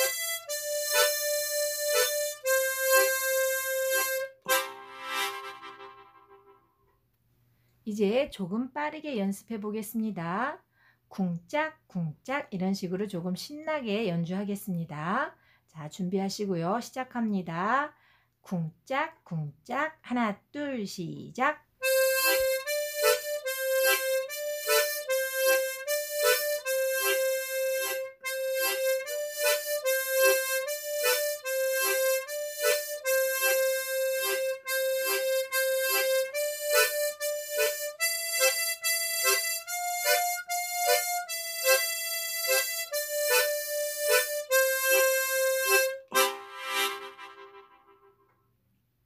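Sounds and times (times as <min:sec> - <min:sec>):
harmonica melody: 0:00.0 - 0:06.8, 0:21.8 - 0:48.4.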